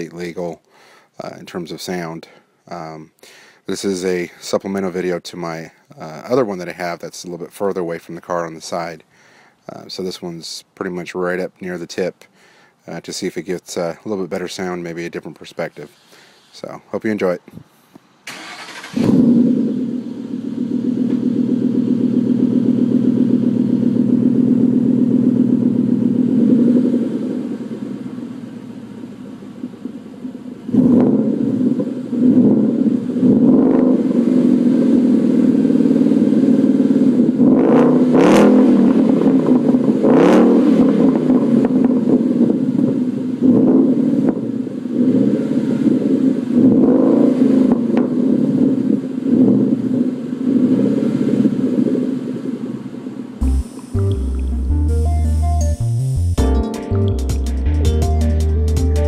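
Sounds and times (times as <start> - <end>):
car engine idling: 18.3 - 37.6
engine throttle blips: 18.3 - 52.6, 53.4 - 56.4.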